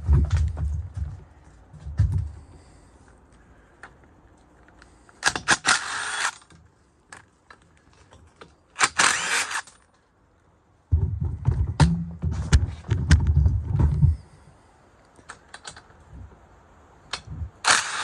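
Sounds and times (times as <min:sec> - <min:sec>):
cordless power driver running: 0:17.7 - 0:18.0.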